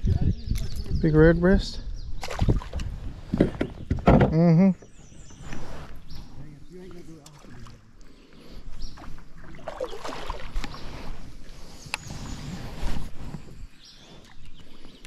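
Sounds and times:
water noise: 2.1s - 4.0s, 4.8s - 15.0s.

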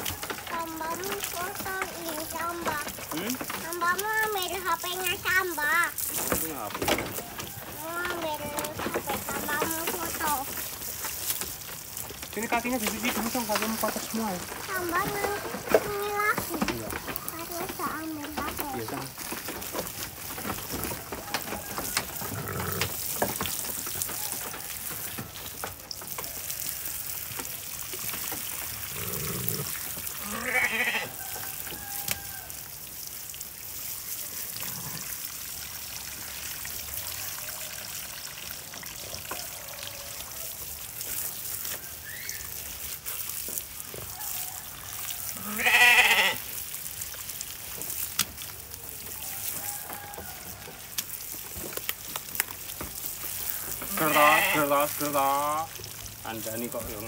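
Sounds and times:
garden hose spraying water: 0.0s - 57.0s
sheep bleating: 29.0s - 31.2s, 45.4s - 46.4s, 53.9s - 55.1s.

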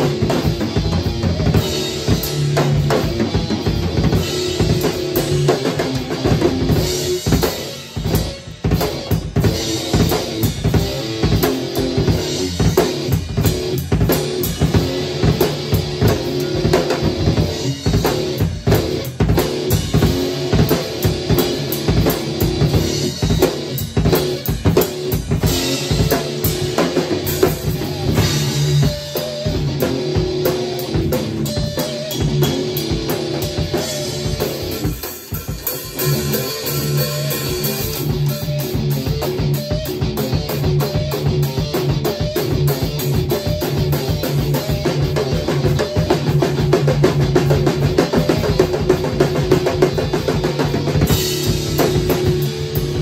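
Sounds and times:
drum kit played hard: 0.0s - 53.0s.

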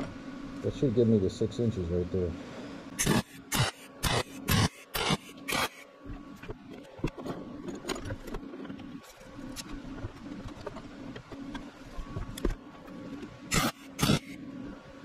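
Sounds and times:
welding arc crackling: 3.0s - 5.9s, 13.5s - 14.4s.

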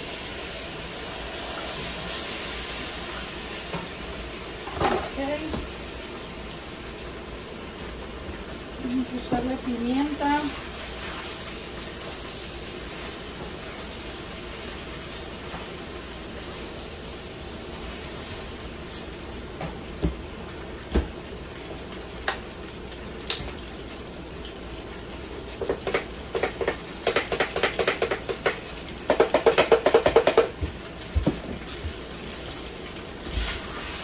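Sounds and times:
pasta sizzling in a pan: 0.0s - 34.0s
tongs knocking on pan: 25.6s - 31.4s.

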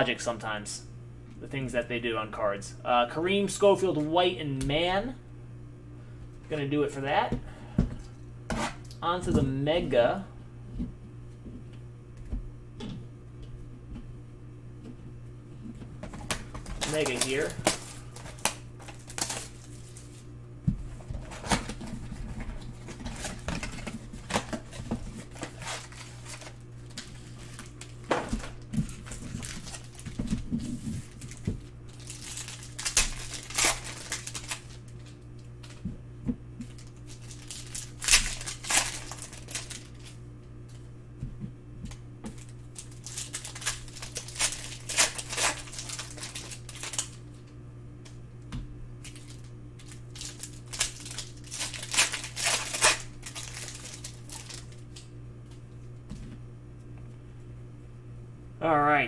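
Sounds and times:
steady low hum: 0.0s - 59.0s
plastic wrapping crinkling and tearing: 16.2s - 20.3s, 21.1s - 35.8s, 36.6s - 40.2s, 42.3s - 47.4s, 49.0s - 55.0s.

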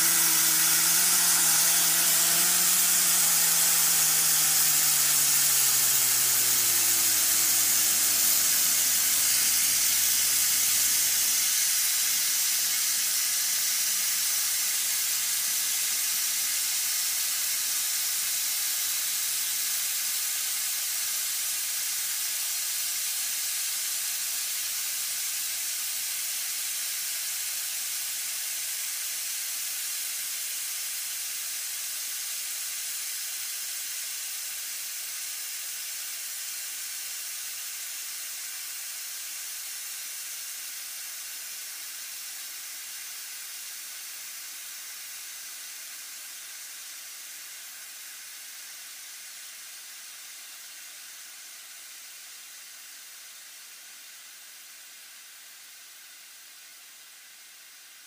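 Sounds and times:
compressed air hissing: 0.0s - 32.7s.

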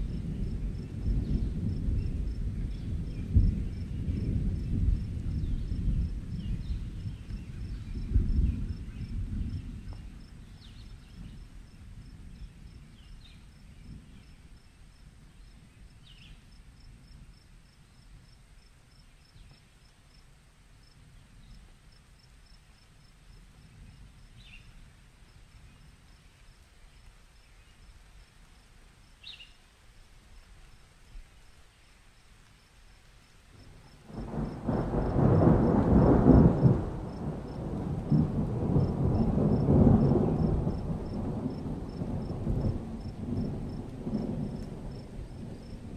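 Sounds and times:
thunder rumbling: 0.0s - 15.4s, 33.6s - 45.9s
crickets chirping: 0.0s - 45.9s.

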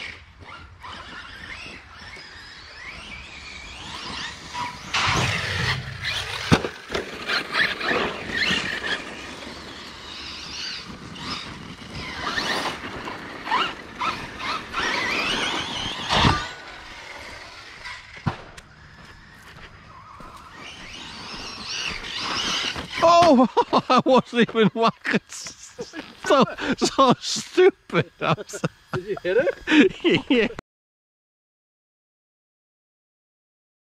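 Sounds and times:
rc truck motor whine: 0.0s - 30.6s
tyres scrabbling on dirt: 0.0s - 30.6s
trucks thumping on ground: 4.5s - 9.3s, 10.6s - 17.2s, 17.8s - 23.4s.

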